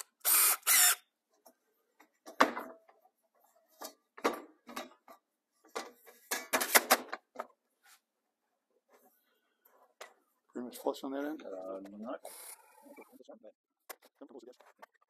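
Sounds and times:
drill rasping: 0.0 - 1.0.

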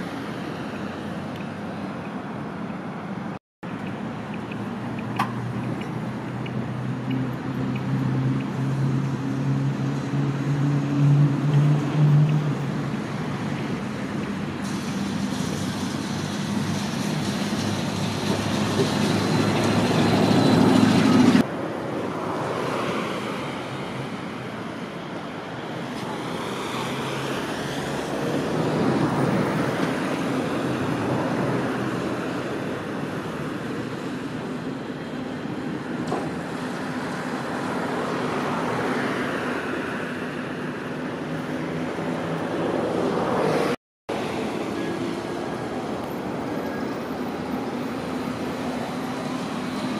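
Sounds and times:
passing traffic: 0.0 - 49.9
tram humming: 3.7 - 22.5, 41.2 - 49.9
tram pulling in: 14.6 - 21.4.

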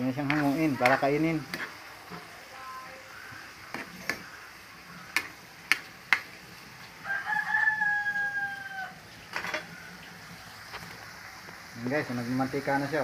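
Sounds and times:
rooster crowing: 7.0 - 10.1.

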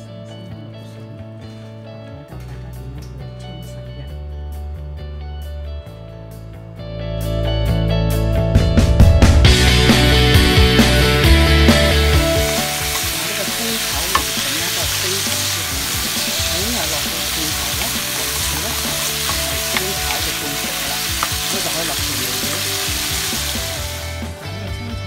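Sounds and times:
vegetables sizzling in oil: 9.5 - 24.4
spatula clicking against pan: 12.5 - 16.1, 16.8 - 22.6.

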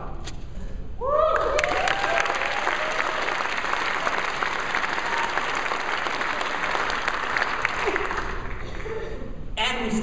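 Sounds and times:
cheering whoops: 1.0 - 6.8
crowd clapping: 1.3 - 9.2.

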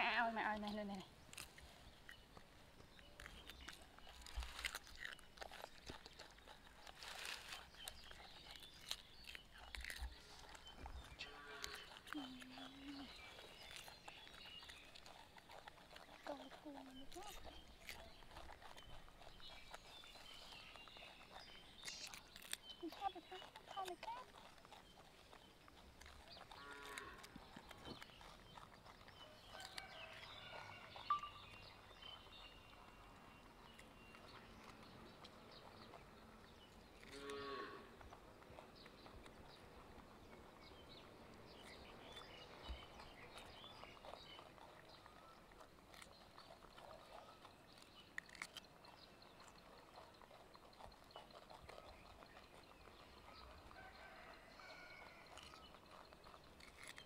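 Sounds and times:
monkeys chewing cucumber: 0.0 - 57.0
animal call: 8.8 - 14.4.

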